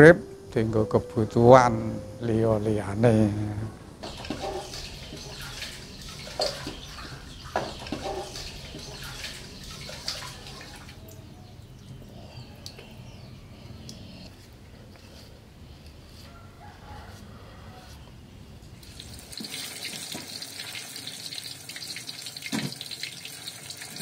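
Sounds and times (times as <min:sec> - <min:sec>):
pot knocking: 0:04.0 - 0:10.4
water pouring off: 0:04.0 - 0:11.2, 0:18.8 - 0:24.0.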